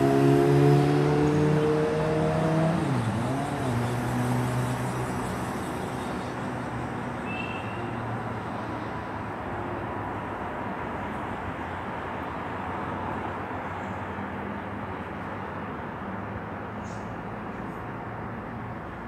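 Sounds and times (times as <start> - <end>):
vehicle engine passing by: 0.0 - 5.6
steady traffic noise: 0.0 - 19.0.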